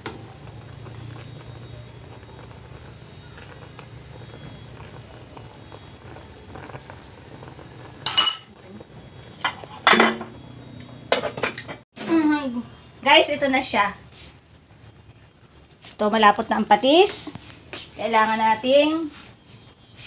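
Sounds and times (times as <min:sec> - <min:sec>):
sharp metallic clanks: 0:08.1 - 0:08.5.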